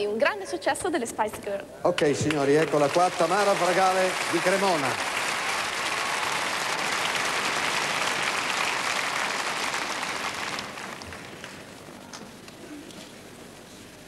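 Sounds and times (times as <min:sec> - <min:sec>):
audience applauding: 0:01.9 - 0:12.6.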